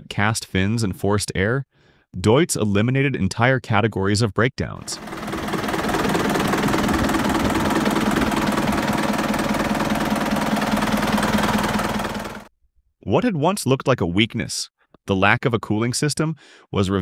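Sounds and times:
diesel engine clattering: 0:04.9 - 0:12.5.

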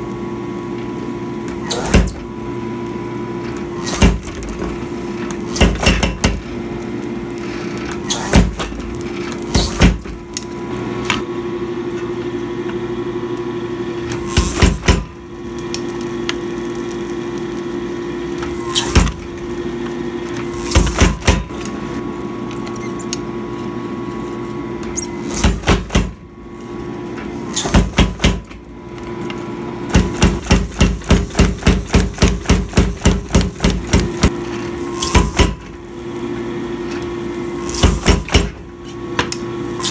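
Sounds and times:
steady hum: 0:00.0 - 0:39.9.

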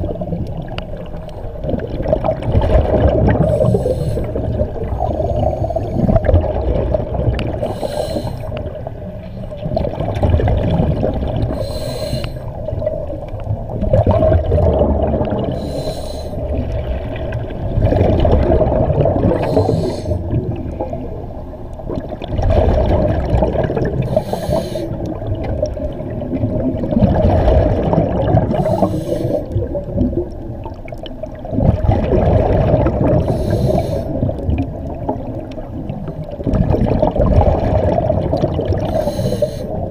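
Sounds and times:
exhaled bubbles gurgling: 0:00.0 - 0:39.9
regulator inhale hiss: 0:03.4 - 0:04.4, 0:05.0 - 0:06.3, 0:07.6 - 0:08.6, 0:11.5 - 0:12.6, 0:15.5 - 0:16.5, 0:19.4 - 0:20.3, 0:24.0 - 0:25.1, 0:28.6 - 0:29.6, 0:33.2 - 0:34.3, 0:38.8 - 0:39.8.

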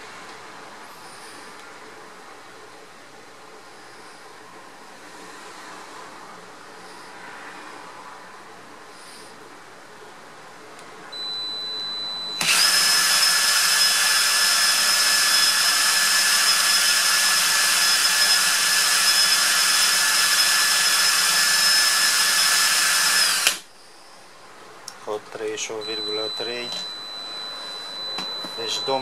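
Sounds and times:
cordless drill whining: 0:12.2 - 0:23.7, 0:25.8 - 0:29.0.

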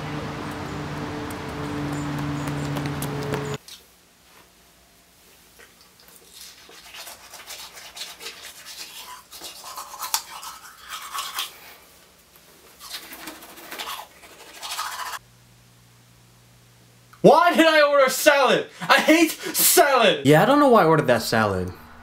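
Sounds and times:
toothbrush scrubbing teeth: 0:05.6 - 0:11.9, 0:12.6 - 0:15.2.

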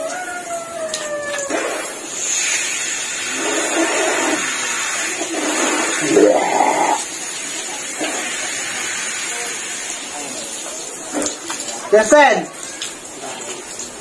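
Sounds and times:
shower water spraying: 0:00.0 - 0:14.0
water splashing: 0:00.1 - 0:08.8.

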